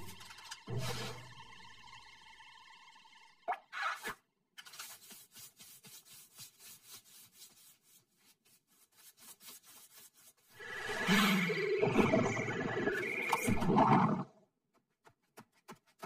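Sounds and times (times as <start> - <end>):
scrubbing brush scouring floor: 4.6 - 11.4.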